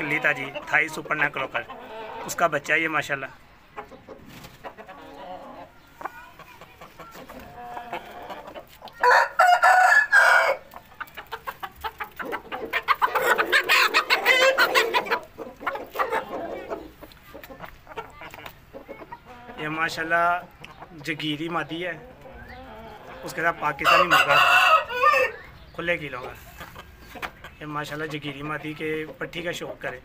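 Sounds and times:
chickens clucking and squawking: 0:00.0 - 0:30.0
rooster crowing: 0:09.0 - 0:10.7, 0:23.8 - 0:25.4.

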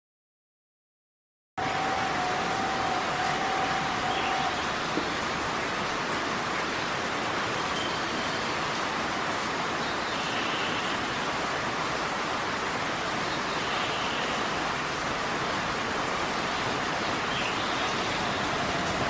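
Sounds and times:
heavy rain pouring: 0:01.6 - 0:19.0.

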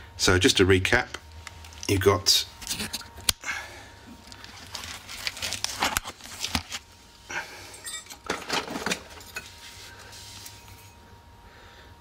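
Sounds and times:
handling rustles and scrapes: 0:04.2 - 0:07.1, 0:07.9 - 0:11.0.

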